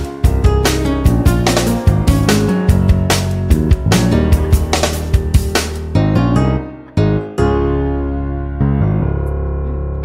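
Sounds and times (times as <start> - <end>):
background music with drum beat: 0.0 - 6.1.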